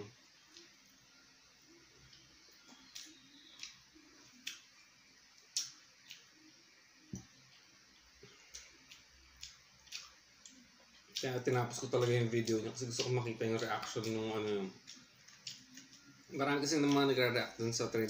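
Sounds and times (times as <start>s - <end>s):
fingers picking at food: 2.1s - 3.8s, 8.4s - 17.1s
chewing mouth smacks: 5.4s - 6.3s, 8.5s - 11.2s, 14.8s - 16.1s.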